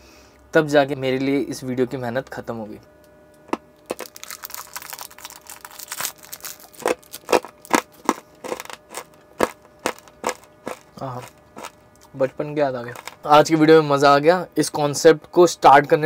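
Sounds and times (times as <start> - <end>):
plastic wrapper crinkling: 3.9 - 11.8, 12.9 - 13.3.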